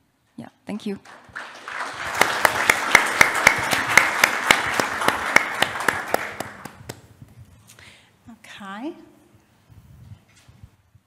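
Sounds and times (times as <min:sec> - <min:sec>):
audience applauding: 0:01.0 - 0:07.1.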